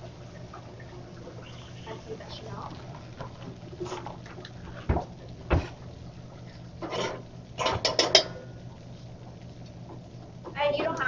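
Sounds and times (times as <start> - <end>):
steady low hum: 0.0 - 11.0
utensils clattering and clinking: 6.8 - 8.4.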